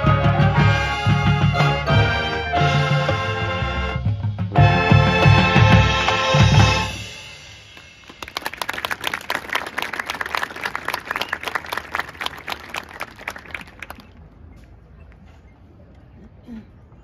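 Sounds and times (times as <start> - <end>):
marching band brass and drums: 0.0 - 9.1
audience applause: 7.8 - 14.2.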